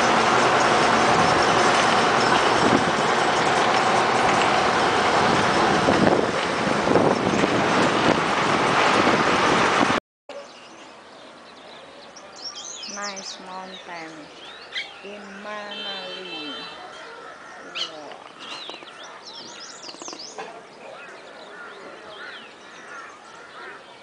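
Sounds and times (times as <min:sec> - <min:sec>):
vehicle driving noise: 0:00.0 - 0:11.9.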